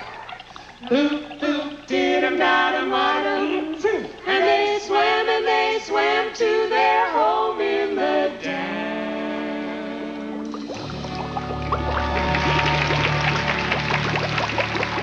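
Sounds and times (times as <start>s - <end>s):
people singing in harmony: 0.8s - 10.7s.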